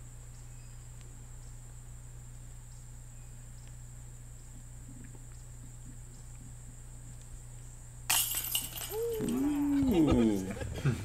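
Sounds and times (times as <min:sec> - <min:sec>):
insect chorus drone: 0:00.0 - 0:11.0
low steady hum: 0:00.0 - 0:11.0
faint ticks: 0:00.2 - 0:02.9, 0:03.5 - 0:03.8.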